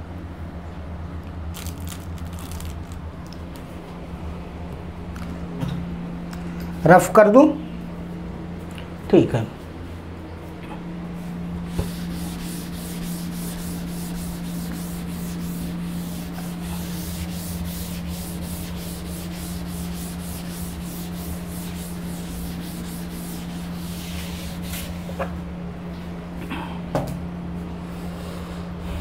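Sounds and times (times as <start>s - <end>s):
duster rubbing writing board: 11.7s - 25.3s.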